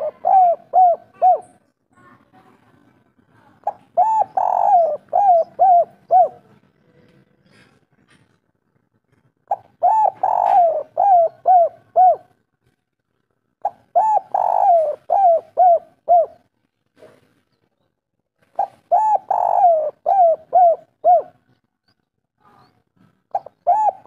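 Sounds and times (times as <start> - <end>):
dove cooing: 0.0 - 1.6, 3.6 - 6.6, 9.4 - 12.4, 13.6 - 16.5, 18.5 - 21.5, 23.3 - 24.0.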